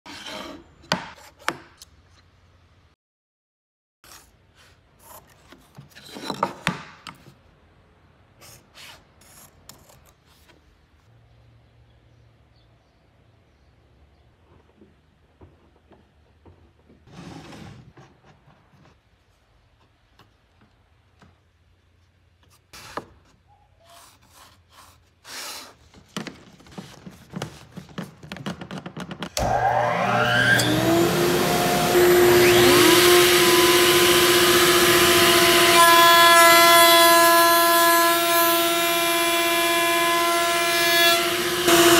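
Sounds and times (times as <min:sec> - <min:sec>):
loud scrape: 0:17.1 - 0:18.0
pencil scratching on wood: 0:23.8 - 0:25.8.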